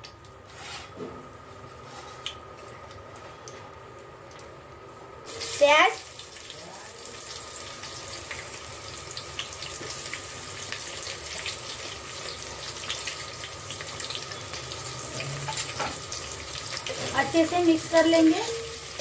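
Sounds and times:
onions sizzling in hot oil: 0:05.2 - 0:19.0.

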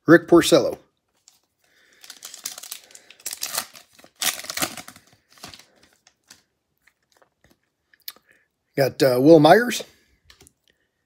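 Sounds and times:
foil wrapper crinkling and tearing: 0:01.2 - 0:07.0.

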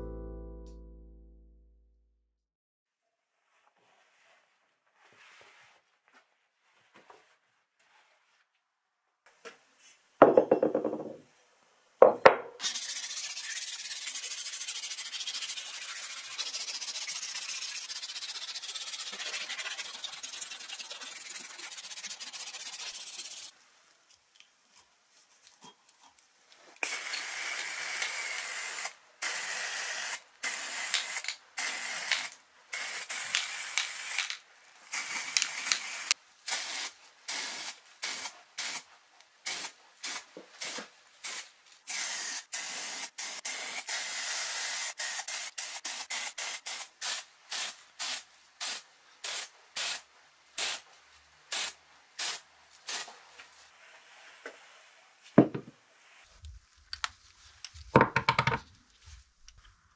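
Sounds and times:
spray paint hissing: 0:12.6 - 0:23.5, 0:26.8 - 0:50.0, 0:50.6 - 0:50.8, 0:51.5 - 0:53.1.

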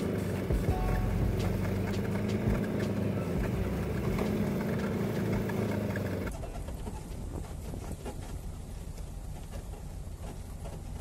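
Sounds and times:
car engine humming: 0:00.0 - 0:11.0
road noise: 0:00.0 - 0:11.0.

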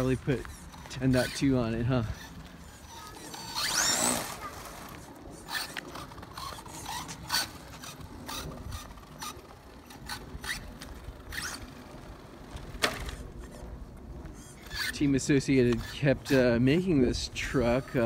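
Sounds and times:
electric motor whining: 0:00.0 - 0:12.1
scrapes and taps on asphalt: 0:15.6 - 0:16.4.

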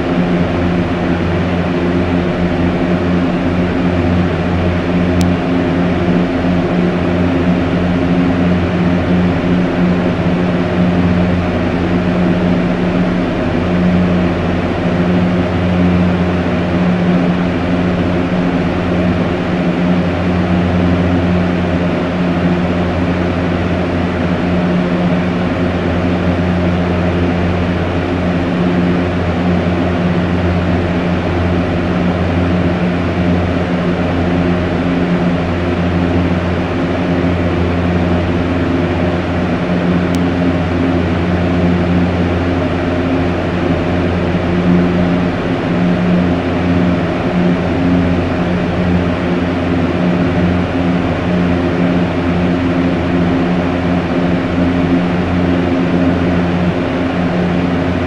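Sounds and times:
fan air rushing: 0:00.0 - 0:58.0
fan motor hum: 0:00.0 - 0:58.0.

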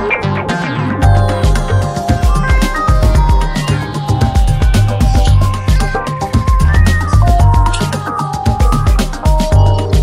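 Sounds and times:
electronic music with heavy bass beat: 0:00.0 - 0:10.0.

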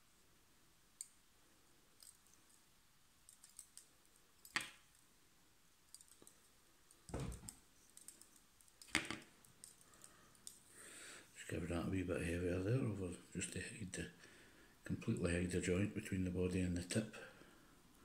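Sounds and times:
small sharp clicks and ticks: 0:01.9 - 0:05.1, 0:05.9 - 0:10.7.

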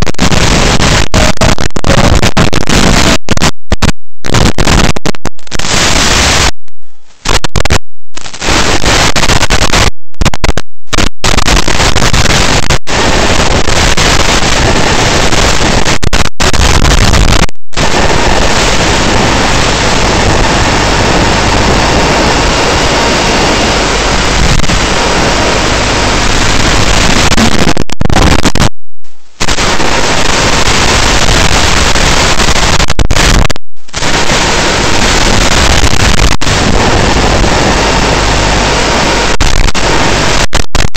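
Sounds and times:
radio static hiss: 0:00.0 - 0:40.9.

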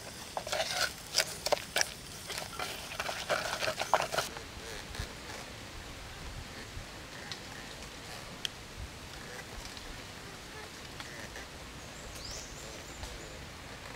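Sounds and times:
wooden spoon stirring in mortar: 0:00.0 - 0:04.3.

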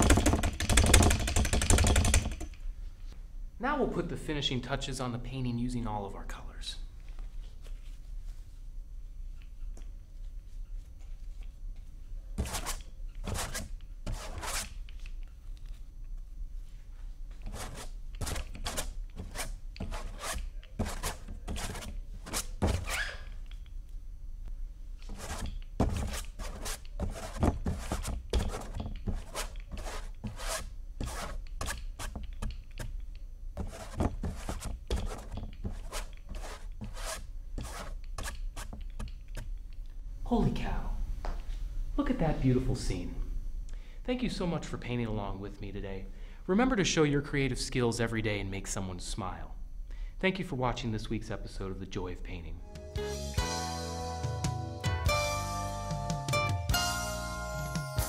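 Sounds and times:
steady low hum: 0:00.0 - 0:52.8
paintbrush scratching on canvas: 0:12.4 - 0:14.8, 0:17.4 - 0:22.6, 0:25.1 - 0:32.2, 0:33.6 - 0:39.0.

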